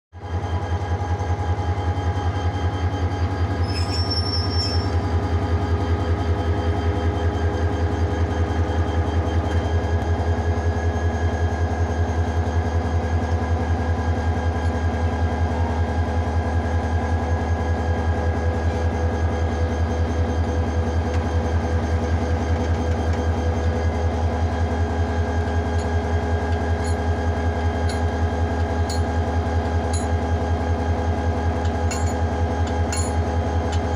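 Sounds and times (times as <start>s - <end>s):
brief high squeal: 3.6s - 5.0s
locomotive engine throbbing: 12.7s - 33.9s.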